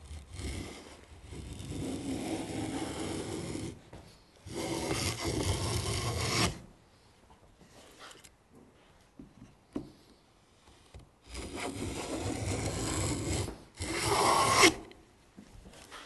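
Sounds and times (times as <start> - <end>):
plane shaving wood: 0.0 - 6.6, 11.3 - 14.9.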